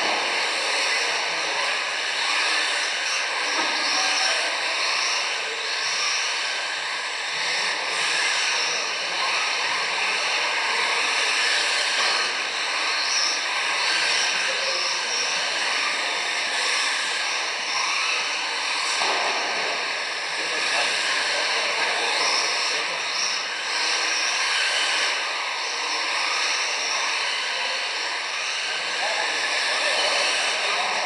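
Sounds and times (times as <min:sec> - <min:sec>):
rc car motors whining: 0:00.0 - 0:31.0.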